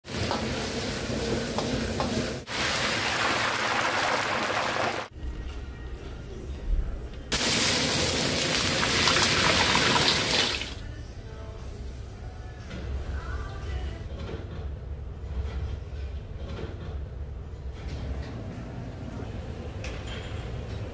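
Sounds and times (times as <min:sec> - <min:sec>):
watery cooking hiss: 0:00.0 - 0:05.1, 0:07.3 - 0:10.8.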